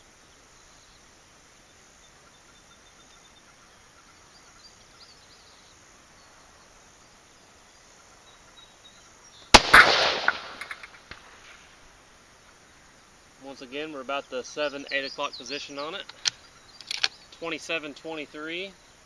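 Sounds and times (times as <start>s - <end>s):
rifle shot crack: 9.5s - 11.6s
faint echoing cracks: 9.6s - 11.8s.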